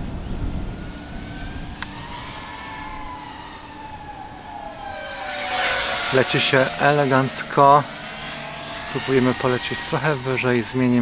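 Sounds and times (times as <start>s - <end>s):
wind rumble on microphone: 0.0s - 8.0s
quadcopter motor whine: 0.0s - 11.0s.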